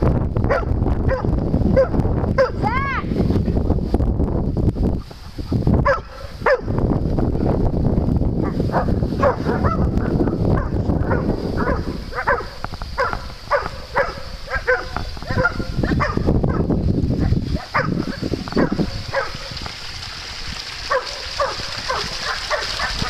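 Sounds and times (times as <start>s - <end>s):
dogs barking: 0.5s - 2.6s, 5.8s - 6.8s, 8.4s - 19.6s, 20.9s - 23.0s.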